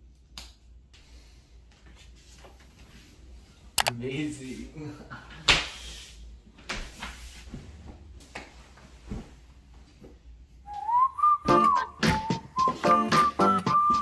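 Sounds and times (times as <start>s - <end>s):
whistled melody over drum beat: 10.7s - 14.0s.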